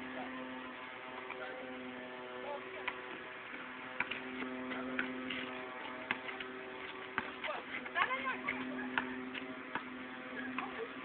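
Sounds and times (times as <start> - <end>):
electrical hum: 0.0 - 11.0
basketball bouncing on hard court: 3.6 - 5.4, 6.0 - 10.8.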